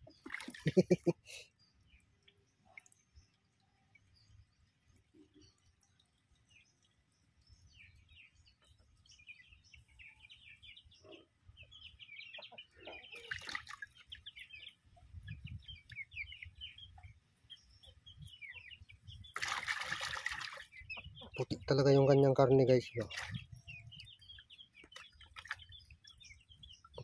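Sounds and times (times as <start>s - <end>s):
chickens chirping: 0.0s - 1.5s, 7.8s - 27.0s.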